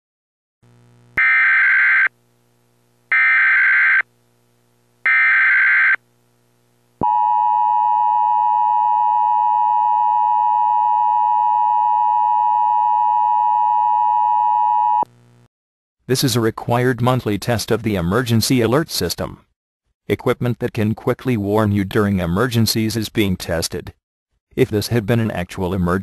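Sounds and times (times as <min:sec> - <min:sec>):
two-tone alarm: 0:01.2 - 0:02.1, 0:03.1 - 0:04.0, 0:05.1 - 0:06.0, 0:07.0 - 0:15.0.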